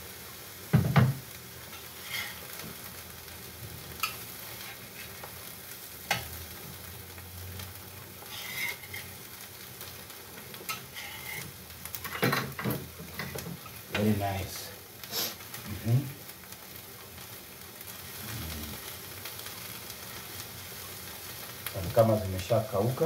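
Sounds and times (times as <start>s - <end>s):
fish sizzling in a frying pan: 0.0s - 23.0s
metal spatula scraping pan: 1.7s - 2.4s, 8.2s - 9.2s, 10.6s - 12.5s.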